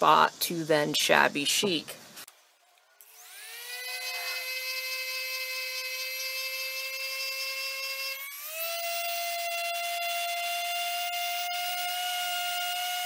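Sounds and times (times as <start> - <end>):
orbital sander whining: 3.0 - 13.0.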